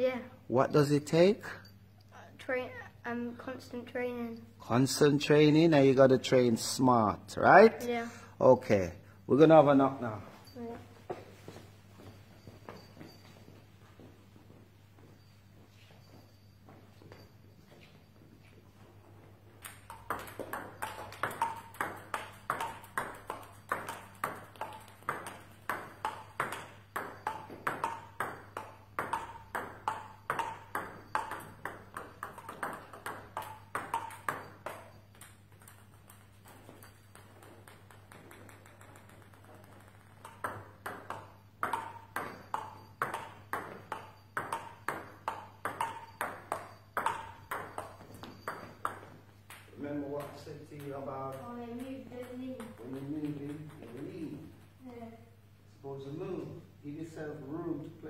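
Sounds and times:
table tennis ball pinging: 19.5s - 54.6s.

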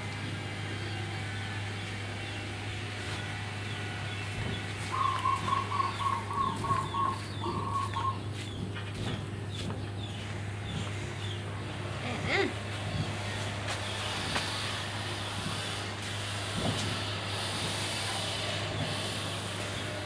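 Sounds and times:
chicken clucking: 4.9s - 8.6s.

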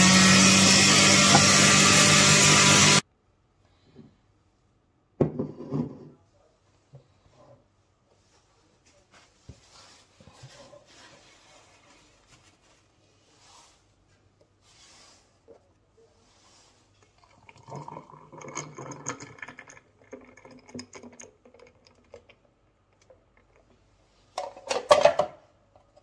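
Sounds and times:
faint handling sounds: 6.1s - 17.3s.

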